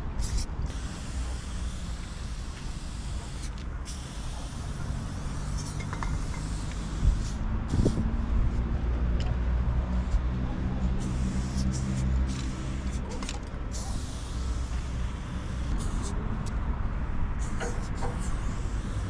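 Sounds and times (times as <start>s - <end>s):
aerosol spray can hissing: 0.2s - 8.2s, 10.9s - 16.2s, 17.4s - 19.0s
large engine humming: 4.8s - 19.0s.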